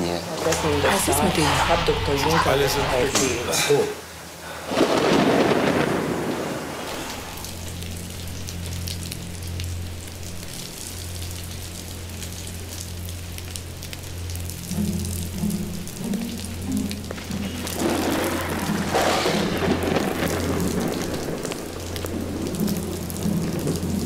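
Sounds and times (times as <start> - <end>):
low music drone: 0.0 - 4.4, 6.9 - 24.0
rain pattering: 0.0 - 24.0
thunder roll: 0.4 - 3.5, 4.6 - 8.3, 15.4 - 24.0
pulsing low musical notes: 7.3 - 24.0.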